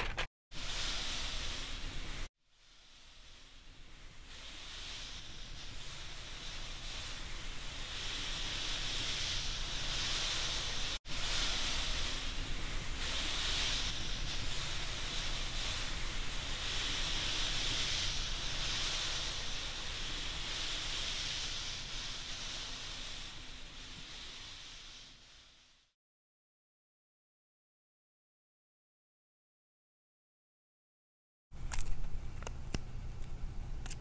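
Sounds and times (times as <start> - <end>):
hissing rush of pouring grains: 0.1 - 26.0.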